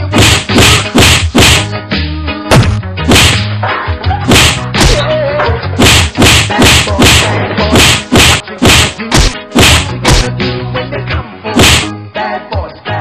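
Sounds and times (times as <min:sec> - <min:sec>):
background music with bass line: 0:00.0 - 0:13.0
punch whacks and thuds: 0:00.1 - 0:01.8, 0:02.5 - 0:03.6, 0:04.3 - 0:05.1, 0:05.8 - 0:10.3, 0:11.6 - 0:11.9.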